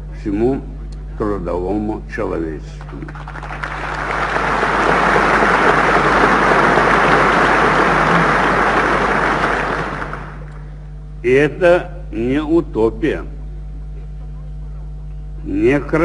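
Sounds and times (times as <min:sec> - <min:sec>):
low mains hum: 0:00.0 - 0:16.0
audience applauding: 0:02.8 - 0:10.7.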